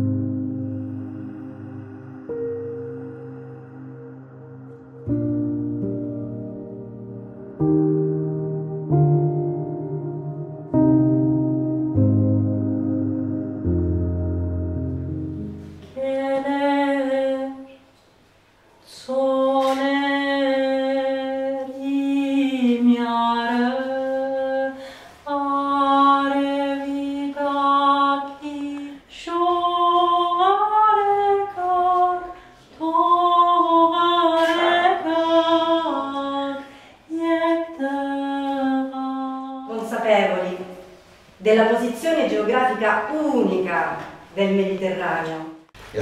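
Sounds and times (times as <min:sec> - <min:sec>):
woman singing unaccompanied: 0:15.8 - 0:17.9, 0:18.9 - 0:40.6.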